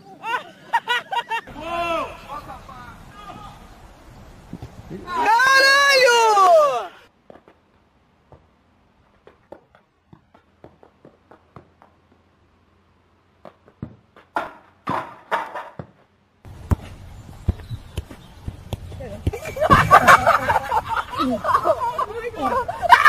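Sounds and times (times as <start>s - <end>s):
outdoor background noise: 0.0s - 23.0s
football thudding: 13.4s - 20.4s.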